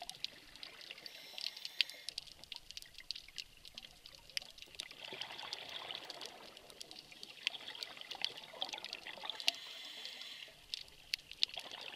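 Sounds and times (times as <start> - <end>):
diver's exhaled bubbles gurgling: 4.0 - 9.6, 11.4 - 11.9.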